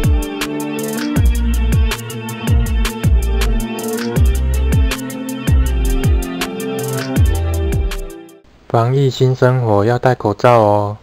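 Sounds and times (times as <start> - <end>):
fast ticking hi-hats: 0.0 - 8.2
deep sliding bass hits: 1.2 - 4.9, 5.5 - 6.3.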